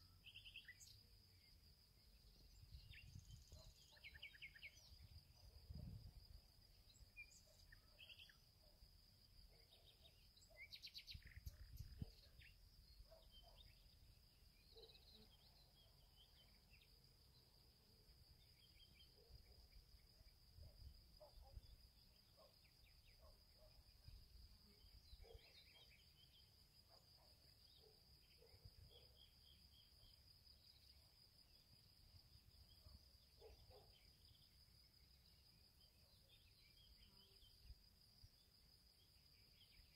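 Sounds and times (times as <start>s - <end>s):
small bird chirps: 0.0s - 1.1s, 2.2s - 6.0s, 6.8s - 8.7s, 9.5s - 14.0s, 21.2s - 30.0s
high thin insect hum: 0.0s - 39.9s.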